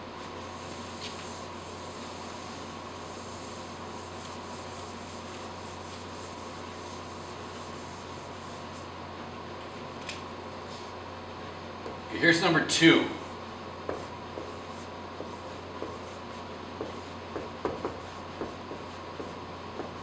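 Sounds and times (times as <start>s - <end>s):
low room hum: 0.0s - 20.0s
eraser wiping a whiteboard: 0.2s - 8.9s, 13.2s - 20.0s.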